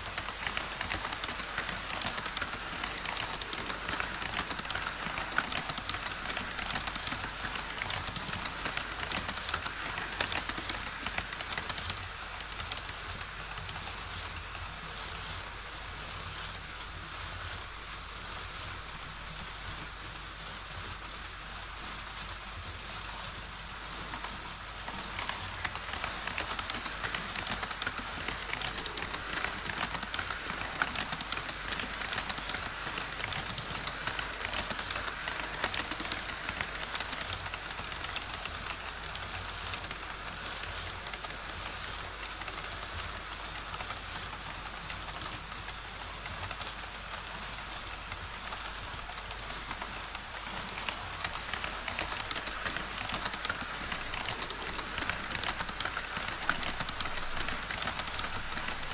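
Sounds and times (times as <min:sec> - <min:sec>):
model train wheels clicking on rail: 0:00.0 - 0:58.9.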